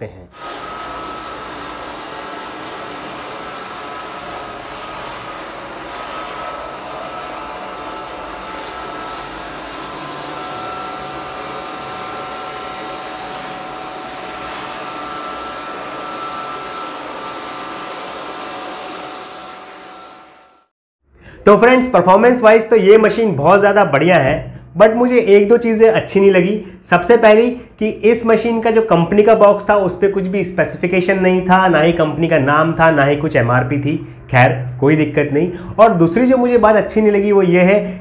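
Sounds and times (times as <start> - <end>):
electric air blower running: 0.4 - 20.7.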